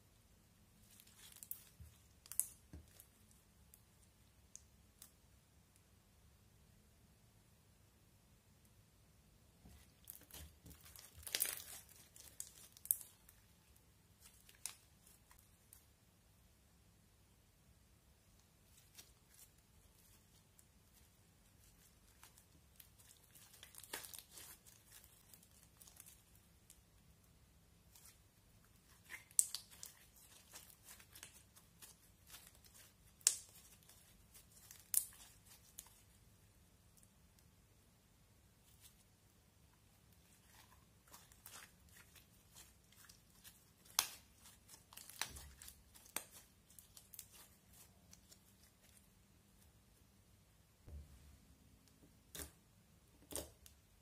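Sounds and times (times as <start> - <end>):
slime sticky crackles and pops: 1.0 - 3.4, 10.0 - 13.4, 22.1 - 26.4, 28.8 - 36.1, 40.5 - 49.0
slime crackling and clicking: 1.4 - 3.1, 41.1 - 47.8.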